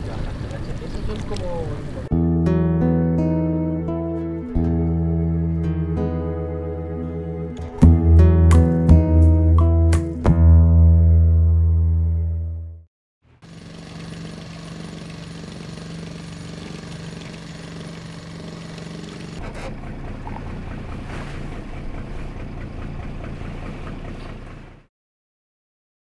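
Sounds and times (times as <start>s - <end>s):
motorboat engine running: 13.3s - 24.9s
wind and water hiss: 13.5s - 19.4s.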